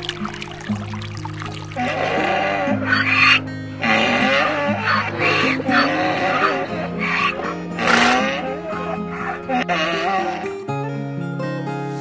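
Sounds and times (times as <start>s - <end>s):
background music held notes: 0.0s - 12.0s
animal calls: 1.7s - 10.6s.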